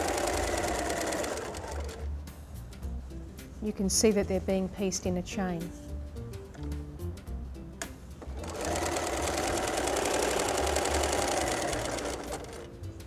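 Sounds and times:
sewing machine stitching: 0:00.0 - 0:02.1, 0:08.2 - 0:12.8.

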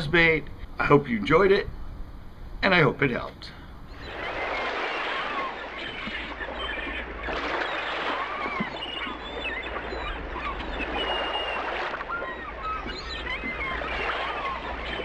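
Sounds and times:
birds chirping: 0:00.0 - 0:15.0
steady rushing noise: 0:03.8 - 0:15.0.

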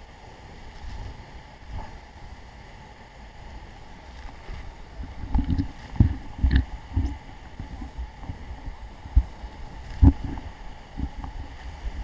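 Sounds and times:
wind buffeting microphone: 0:03.8 - 0:12.0.

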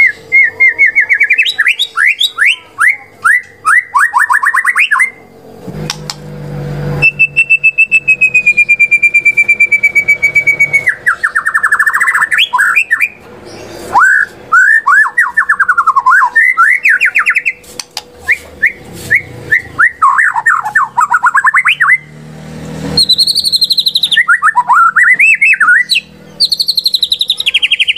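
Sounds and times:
songbird singing varied song: 0:00.0 - 0:05.2, 0:07.0 - 0:17.6, 0:22.9 - 0:27.9.

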